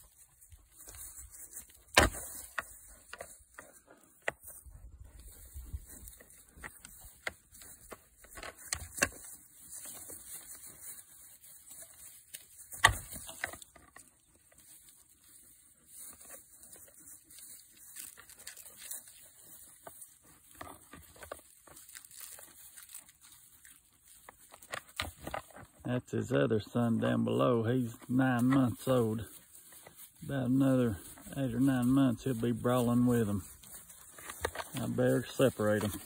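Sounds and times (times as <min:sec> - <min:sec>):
hooves scuffling on dry grass: 0:00.0 - 0:36.0.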